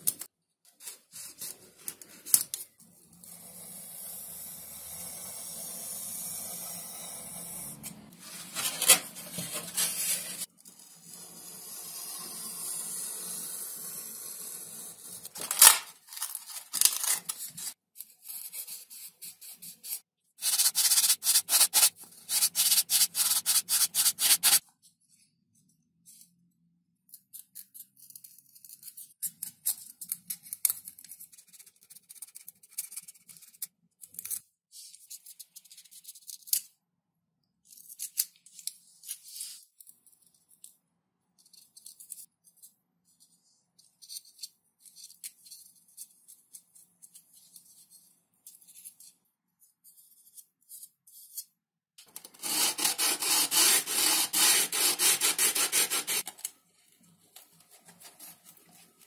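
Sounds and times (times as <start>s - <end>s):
foam parts rubbing and scraping: 8.2s - 11.7s, 14.3s - 24.6s, 52.3s - 56.3s
fast rubbing strokes on foam: 20.5s - 24.6s, 52.4s - 56.2s.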